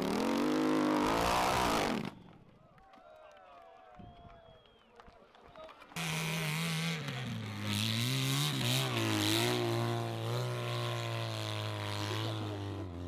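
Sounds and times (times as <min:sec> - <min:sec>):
motorcycle engine revving: 0:00.0 - 0:02.2, 0:06.0 - 0:13.0.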